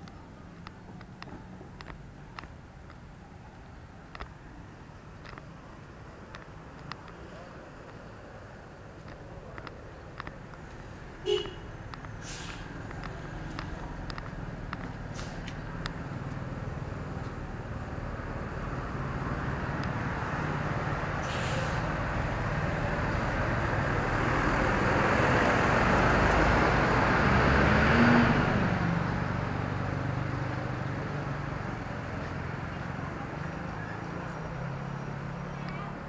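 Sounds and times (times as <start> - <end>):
vehicle engine passing: 9.5 - 36.0
short hiss: 12.2 - 12.8, 21.2 - 21.9.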